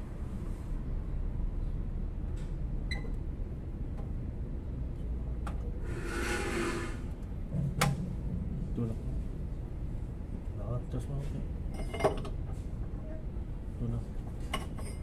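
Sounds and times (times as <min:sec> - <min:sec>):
tool scraping metal: 0:05.8 - 0:07.2.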